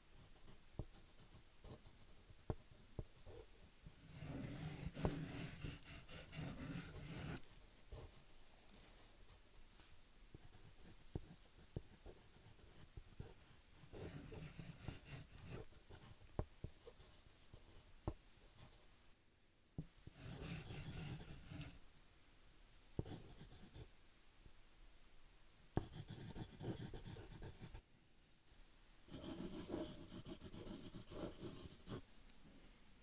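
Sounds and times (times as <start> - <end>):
scratchy drawing strokes: 0.2 - 8.3, 9.3 - 17.9, 20.0 - 21.8, 23.0 - 23.9, 25.8 - 27.8, 29.1 - 32.0.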